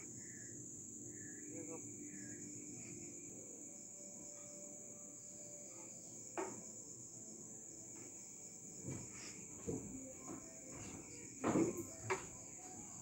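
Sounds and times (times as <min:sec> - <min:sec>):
crickets trilling: 0:00.0 - 0:13.0
kitchenware knocks and thuds: 0:10.7 - 0:12.2.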